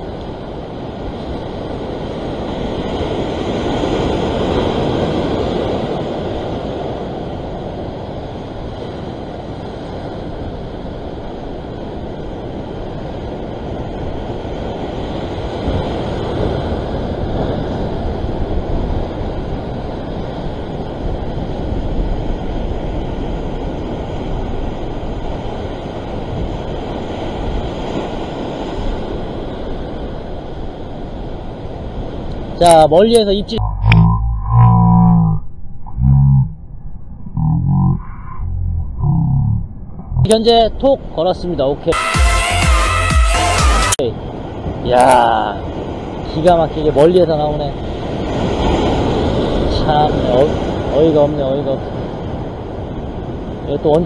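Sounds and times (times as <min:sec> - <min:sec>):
rough sea washing over rocks: 0:00.0 - 0:33.2.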